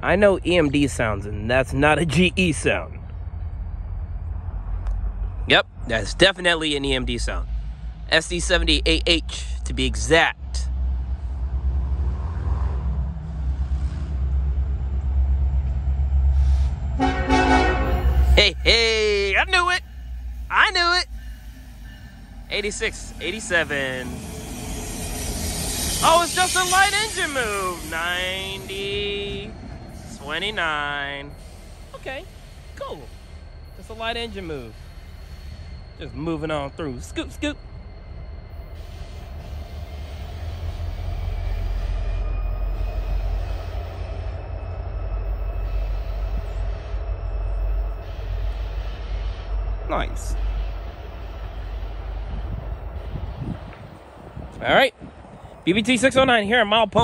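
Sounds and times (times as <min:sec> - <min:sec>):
locomotive engine rumble: 0:00.0 - 0:57.0
locomotive air horn: 0:16.4 - 0:18.7.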